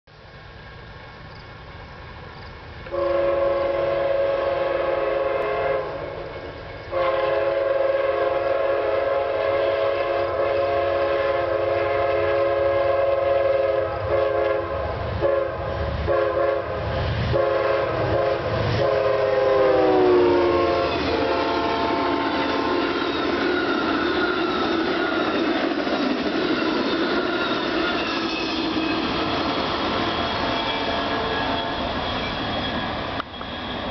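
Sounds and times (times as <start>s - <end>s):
passing train rumble: 0.1s - 33.9s
locomotive air horn chord: 2.9s - 6.3s, 6.9s - 23.9s.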